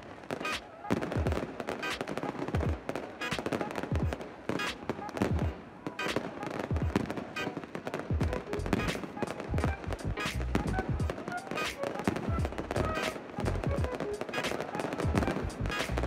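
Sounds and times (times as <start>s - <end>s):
crowd voices: 0.0s - 16.0s
fireworks bangs and crackling: 0.0s - 16.0s
music with deep beat: 8.1s - 16.0s.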